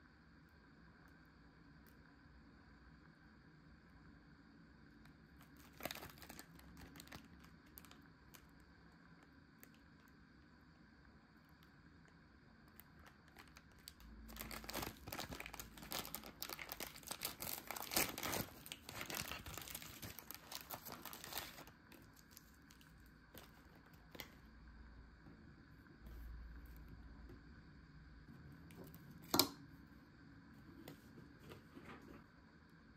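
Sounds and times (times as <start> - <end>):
plastic packaging crinkling and tearing: 5.4 - 8.6, 12.7 - 24.4.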